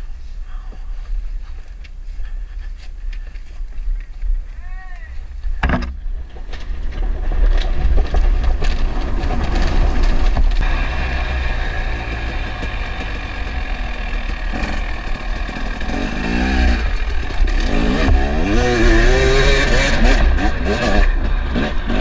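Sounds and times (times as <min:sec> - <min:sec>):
wind rumble on microphone: 0:00.0 - 0:10.6
dirt bike engine running: 0:05.3 - 0:22.0.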